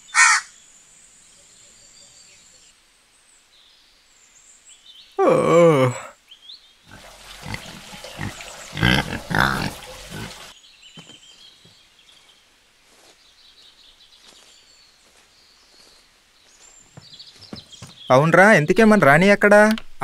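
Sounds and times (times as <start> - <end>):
quiet outdoor background: 0.0 - 20.0
pig grunting: 6.9 - 10.5.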